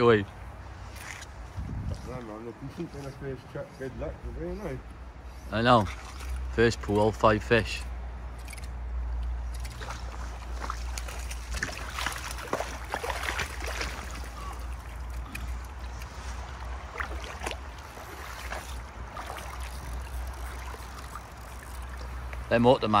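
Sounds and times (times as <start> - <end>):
river water splashing: 0.0 - 3.1, 4.8 - 23.0
wind rumble on microphone: 1.2 - 2.4.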